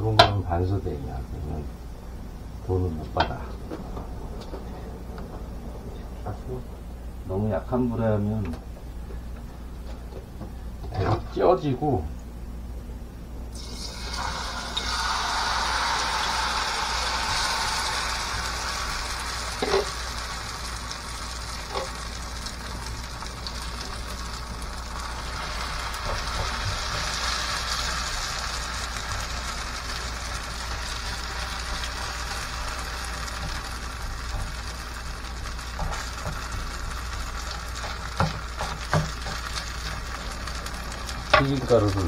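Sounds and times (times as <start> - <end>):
batter sizzling in hot oil: 13.5 - 42.0.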